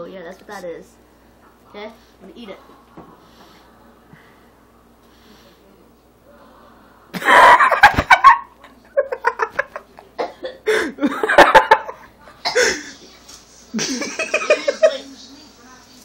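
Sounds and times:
laughter: 7.2 - 10.1, 10.8 - 12.1, 13.7 - 15.1
boy coughing and sputtering: 10.2 - 11.0, 12.4 - 13.0.

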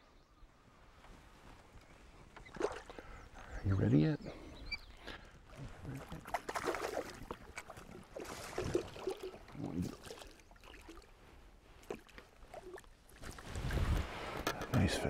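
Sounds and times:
water splashing against boat: 5.5 - 14.6.

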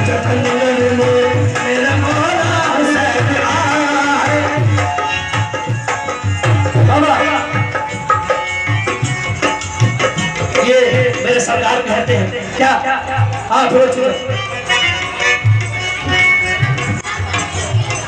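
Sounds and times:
hand drums beating: 0.0 - 18.0.

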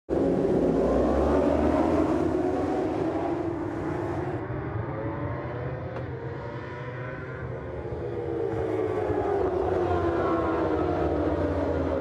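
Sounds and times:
racing motorcycles accelerating: 0.1 - 6.7.

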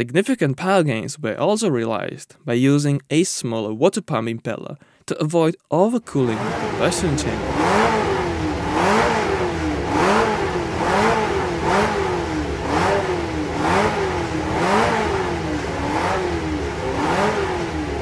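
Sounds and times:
racing engine revving: 6.1 - 18.0.

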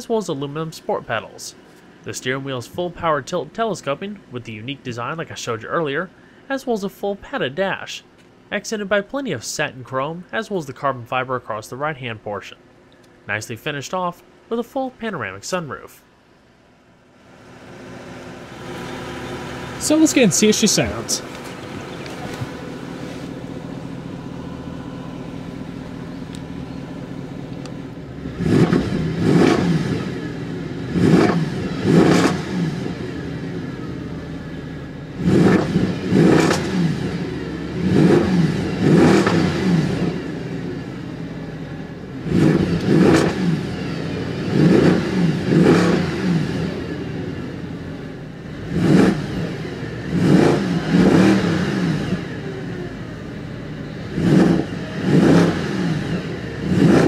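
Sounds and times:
car engine idling and revving: 0.0 - 6.5, 7.6 - 8.5, 11.8 - 13.4, 14.2 - 14.5, 16.0 - 57.0.

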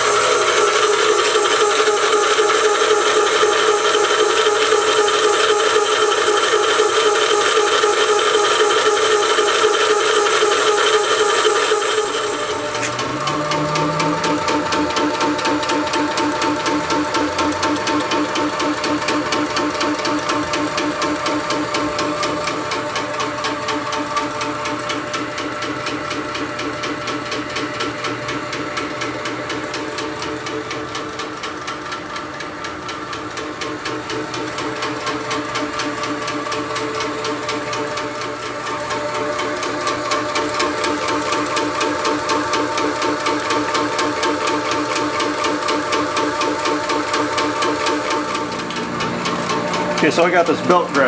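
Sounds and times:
electric motor hum: 0.0 - 25.8, 29.3 - 51.0
compressor pistons ticking: 0.0 - 51.0.

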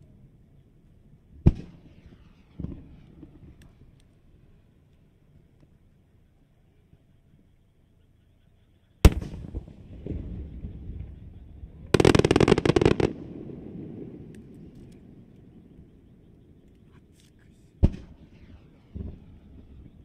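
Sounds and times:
dense crackling pops: 9.0 - 20.0.

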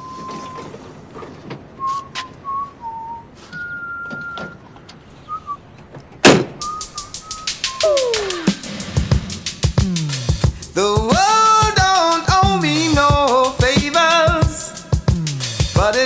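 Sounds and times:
person whistling a slow tune: 0.0 - 0.7, 1.8 - 4.6, 5.3 - 5.6, 6.6 - 8.7
loud thud: 6.2 - 6.8.

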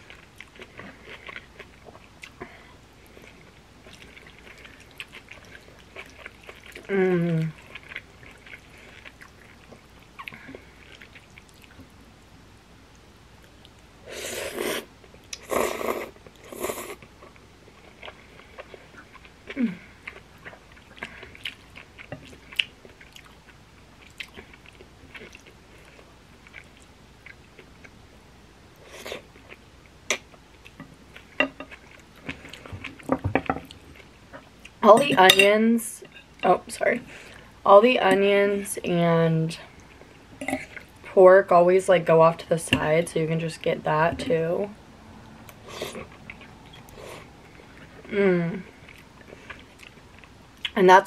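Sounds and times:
wet chewing and smacking: 3.1 - 6.9, 17.0 - 28.0.

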